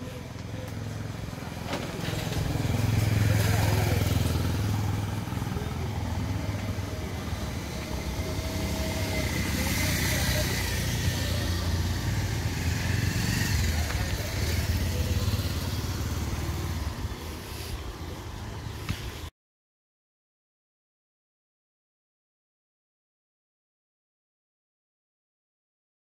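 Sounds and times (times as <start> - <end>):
vehicle engine rumbling: 0.0 - 19.3.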